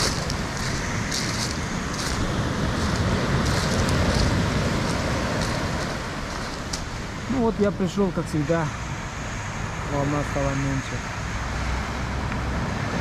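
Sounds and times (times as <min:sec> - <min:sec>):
footsteps crunching on pebbles: 0:00.0 - 0:06.9
surf washing onto shingle: 0:00.0 - 0:07.3
wind buffeting microphone: 0:00.0 - 0:10.8.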